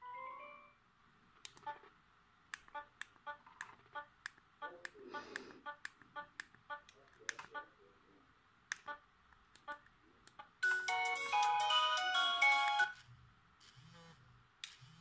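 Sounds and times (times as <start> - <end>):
ringtone melody: 10.6 - 13.0.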